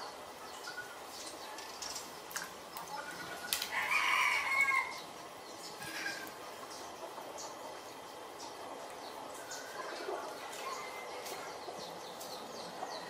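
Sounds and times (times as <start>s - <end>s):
rooster crowing: 3.7s - 5.0s.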